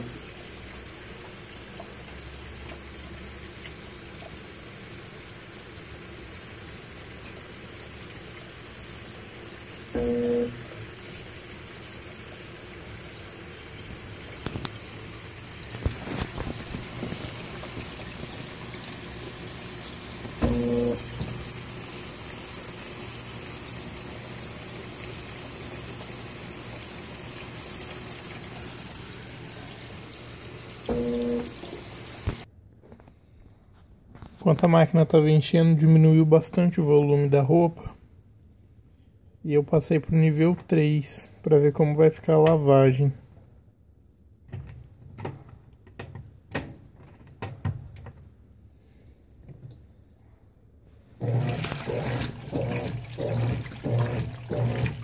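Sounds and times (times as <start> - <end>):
washing machine hum: 0.0 - 32.5, 50.8 - 55.0
water rushing into washing machine: 0.0 - 32.5, 51.0 - 55.0.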